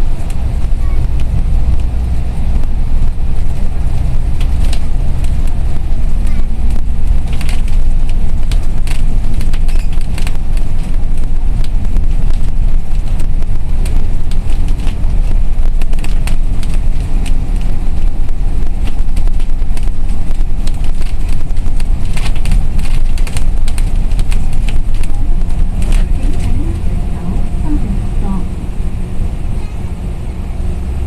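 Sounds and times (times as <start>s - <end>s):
bus engine and road rumble: 0.0s - 31.0s
small clicks and rattles: 3.6s - 26.9s.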